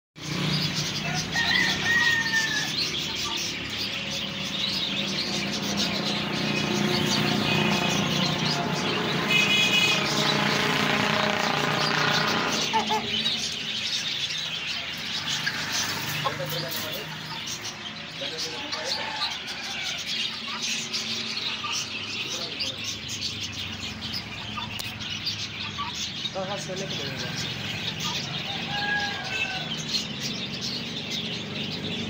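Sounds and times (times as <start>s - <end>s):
birds chirping: 0.2s - 32.0s
rooster crowing: 1.0s - 3.1s, 18.8s - 20.2s, 28.2s - 29.9s.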